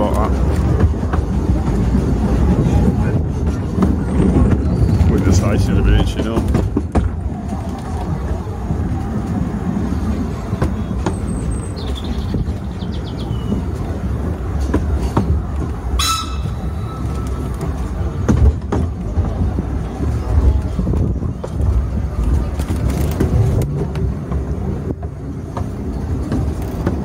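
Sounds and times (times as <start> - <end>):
clicks over rail joints: 0.0 - 12.8, 13.4 - 27.0
train wheels rumbling: 0.0 - 27.0
high-pitched wheel squeal: 16.0 - 17.2.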